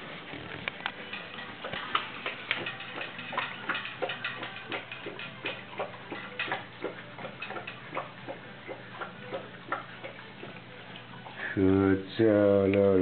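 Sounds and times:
dog eating from metal bowl: 0.0s - 11.2s.

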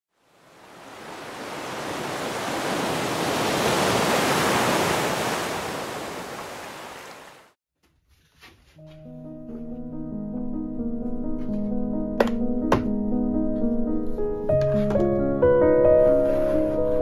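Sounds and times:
ocean surf surging: 0.2s - 7.6s.

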